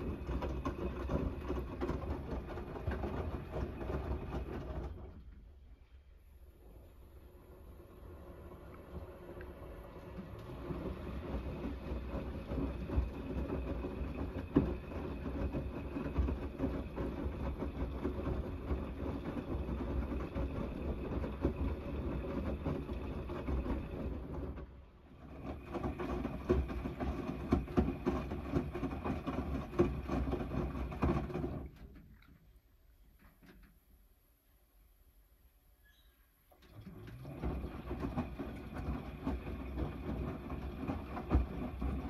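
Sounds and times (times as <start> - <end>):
washing machine motor hum: 0.0 - 34.2, 36.3 - 42.0
laundry knocking against drum: 25.3 - 31.7, 37.2 - 42.0.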